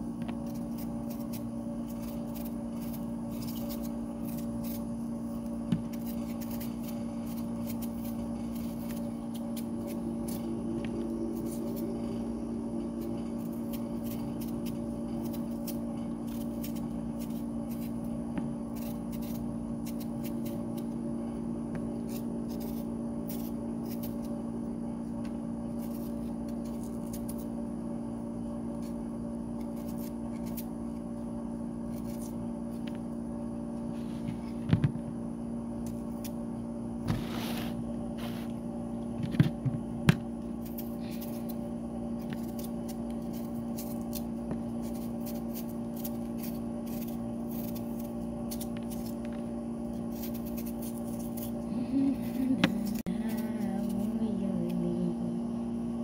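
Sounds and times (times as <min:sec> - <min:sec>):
steady hum: 0:00.0 - 0:56.0
knife scraping potato: 0:00.4 - 0:10.6, 0:12.9 - 0:20.9, 0:21.9 - 0:24.4, 0:25.7 - 0:27.5, 0:29.6 - 0:30.7, 0:31.8 - 0:32.4, 0:37.1 - 0:38.5, 0:40.6 - 0:41.6, 0:42.2 - 0:54.2.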